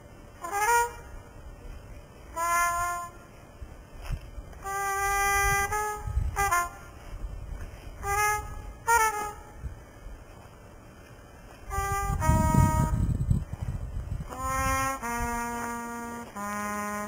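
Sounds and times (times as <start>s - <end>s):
trumpet playing jazz phrases: 0.4s - 1.4s, 2.3s - 3.3s, 4.6s - 7.2s, 7.9s - 9.8s, 11.7s - 13.1s, 14.2s - 17.0s.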